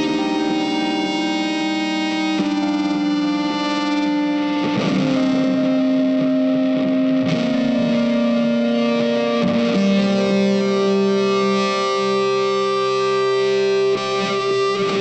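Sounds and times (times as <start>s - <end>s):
electric guitar long held notes: 0.0s - 15.0s.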